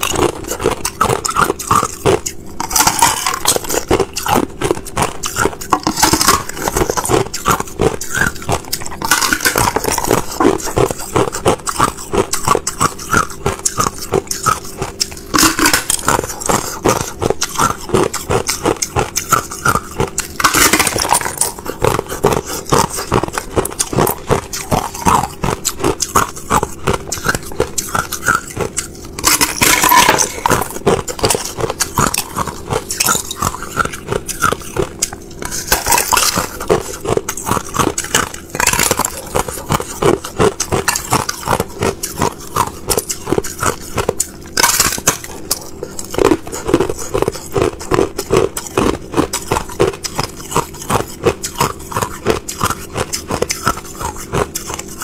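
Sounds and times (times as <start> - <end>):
ice crunching being chewed: 0.0 - 55.0.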